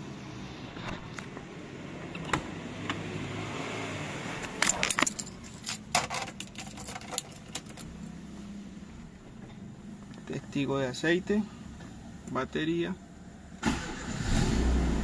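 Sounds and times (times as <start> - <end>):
key turning in ignition: 4.5 - 7.9
keys jangling: 4.6 - 7.9.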